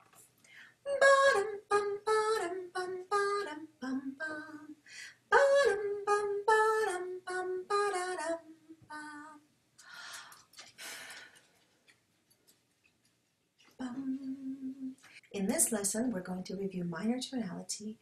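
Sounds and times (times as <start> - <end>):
woman singing wordless tune: 0.9 - 9.4, 13.8 - 18.0.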